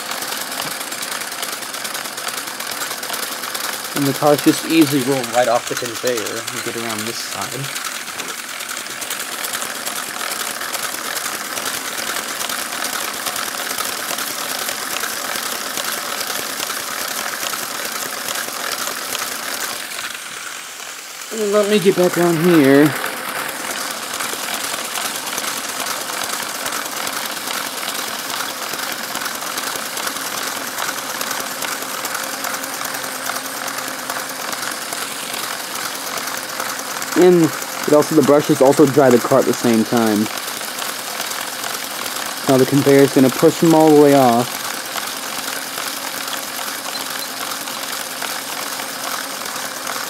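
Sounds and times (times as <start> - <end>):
electric motors whirring and clicking: 0.0 - 50.0.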